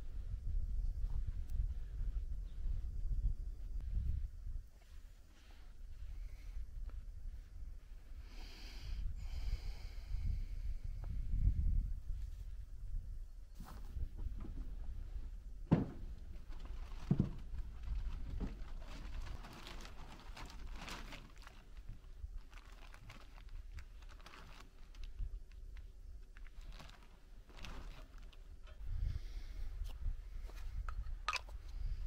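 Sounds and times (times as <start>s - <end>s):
low wind rumble: 0.0s - 32.0s
dull thumps: 15.6s - 17.6s
plastic tarp rustling: 15.7s - 28.6s.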